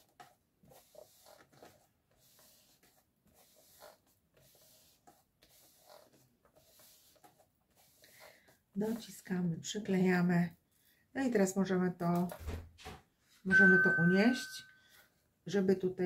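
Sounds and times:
hands rubbing paper: 0.0s - 9.3s.

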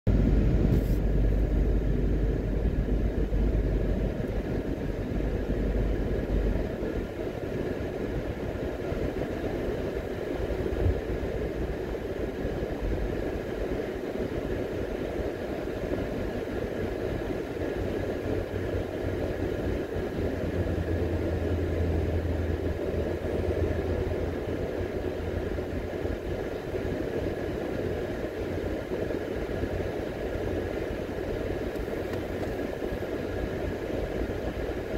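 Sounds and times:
car road noise: 0.1s - 34.9s.

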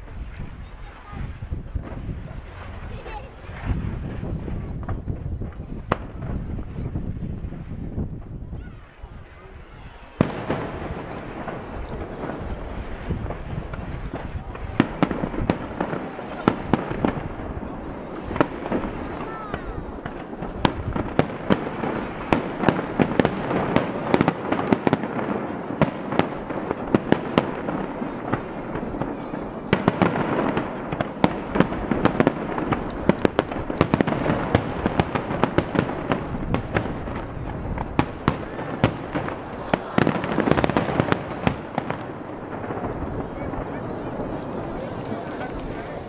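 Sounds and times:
firework shells bursting: 10.1s - 46.0s.

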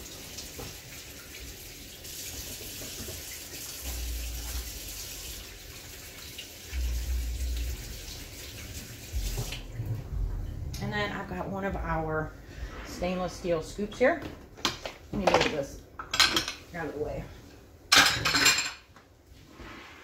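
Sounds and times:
faucet running over hands: 0.0s - 9.7s
low rumbles: 6.7s - 14.6s.

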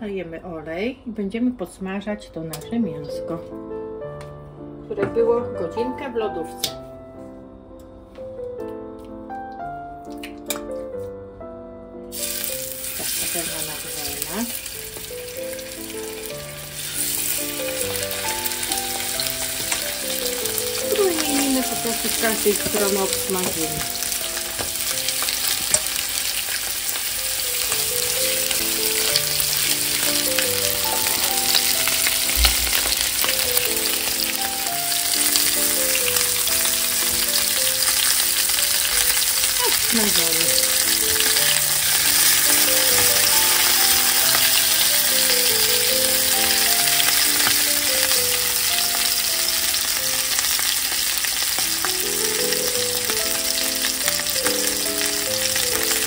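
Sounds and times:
chicken sizzling in hot oil: 12.1s - 56.0s.

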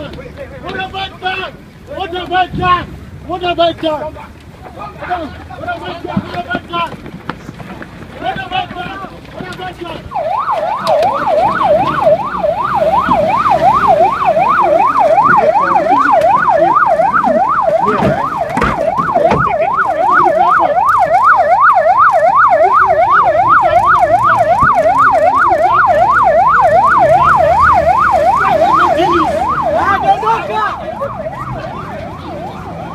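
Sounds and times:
police siren yelping: 8.9s - 32.9s.

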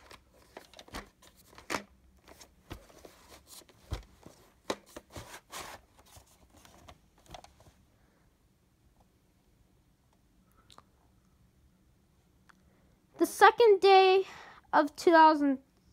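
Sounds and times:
cardboard sleeve rustling: 0.0s - 7.8s.

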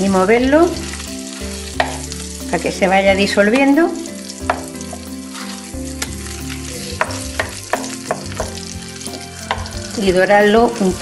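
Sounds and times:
food sizzling in a frying pan: 0.0s - 11.0s
spatula scraping and knocking pan: 0.4s - 2.2s, 4.4s - 9.8s.

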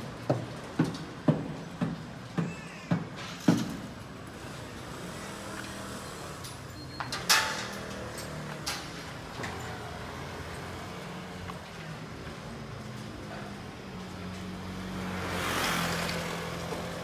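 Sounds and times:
street traffic hum: 0.0s - 17.0s
footsteps on pavement: 0.1s - 3.9s.

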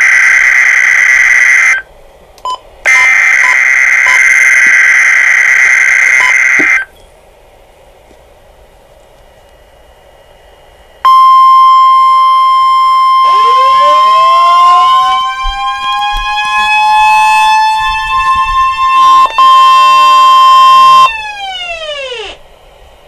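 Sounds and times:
warning sirens winding up: 0.0s - 1.9s, 2.9s - 6.9s, 11.1s - 22.4s
weather radio alert tone: 2.9s - 6.9s, 11.1s - 21.1s.

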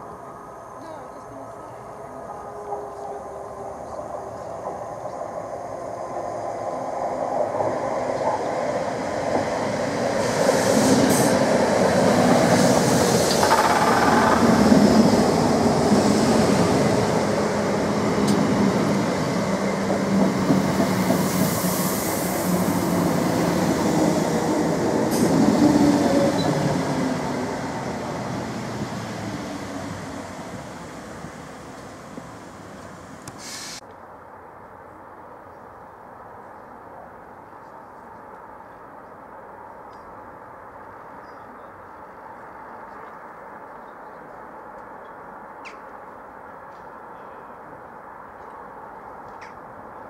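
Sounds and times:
train hum: 0.0s - 50.0s
train wheels rumbling on track: 0.9s - 33.8s
train clicks: 12.2s - 15.1s, 18.2s - 18.6s.

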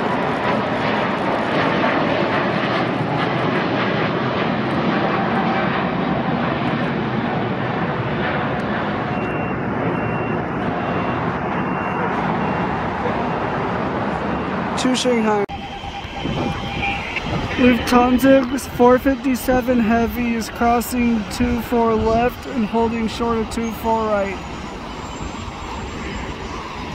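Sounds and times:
jet engine roar: 0.0s - 26.9s.

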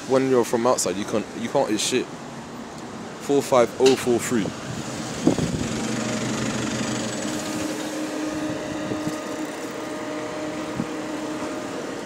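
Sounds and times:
fan noise with whining tones: 0.0s - 12.0s
bus engine humming: 4.5s - 12.0s.

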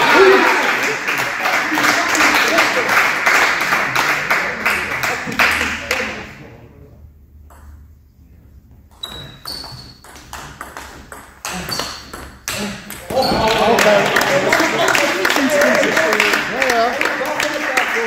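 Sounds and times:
voices in a hall: 0.0s - 7.3s, 12.5s - 18.0s.

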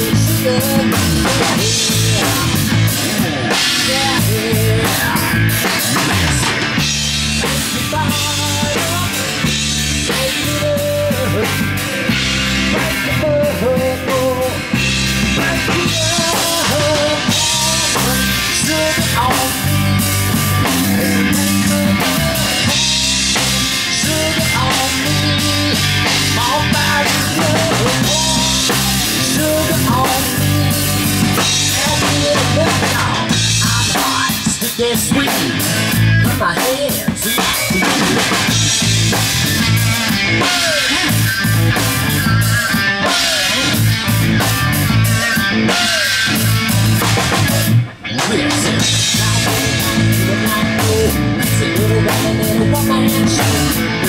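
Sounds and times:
bass guitar: 0.0s - 54.0s
drum kit: 0.0s - 54.0s
electric guitar with bent notes: 0.0s - 54.0s.

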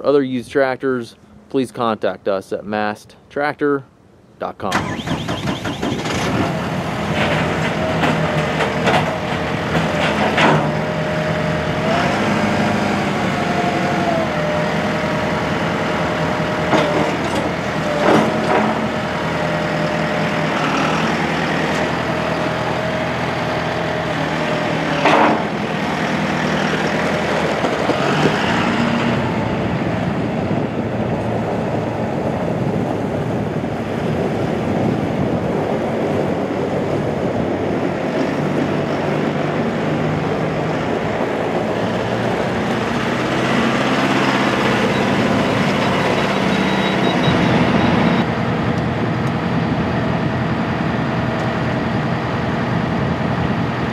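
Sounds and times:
engine whine: 4.0s - 53.9s
tractor diesel engine running: 4.6s - 53.9s.

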